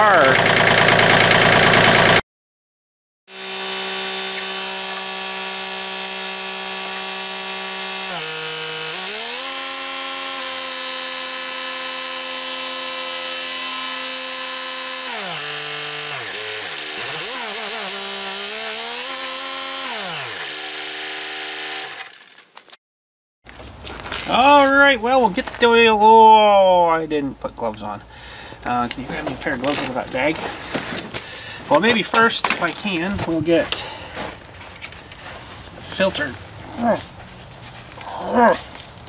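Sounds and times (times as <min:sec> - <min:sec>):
tractor diesel engine whining: 0:00.0 - 0:02.2, 0:27.7 - 0:37.2.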